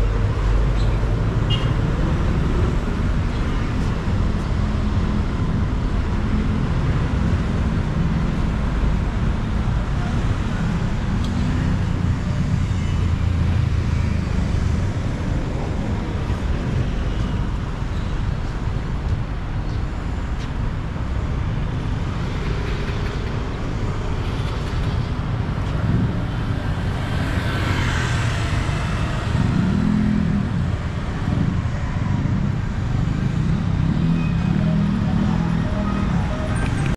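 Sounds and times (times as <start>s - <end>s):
road traffic rumble: 0.0s - 36.9s.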